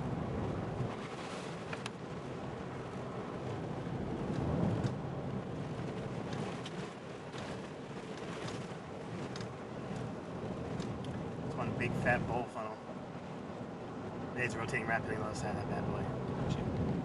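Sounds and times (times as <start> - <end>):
tyres and engine rumble: 0.0 - 17.0
light ticks: 4.3 - 5.0, 6.2 - 10.1, 10.7 - 11.6.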